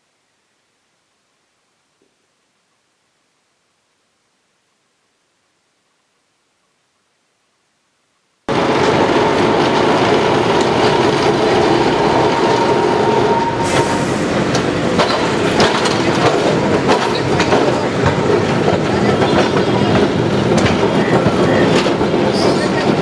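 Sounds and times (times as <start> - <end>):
tram wheels clattering on rails: 8.5 - 23.0.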